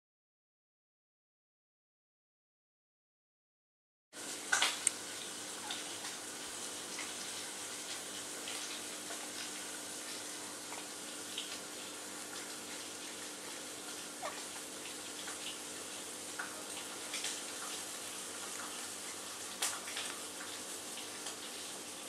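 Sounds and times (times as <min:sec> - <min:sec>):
steady hiss: 0:04.2 - 0:22.0.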